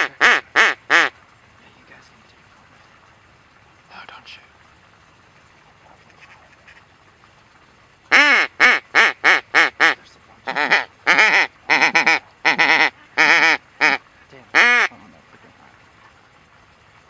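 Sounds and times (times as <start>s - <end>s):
duck quacking: 0.0s - 1.1s, 8.1s - 14.9s.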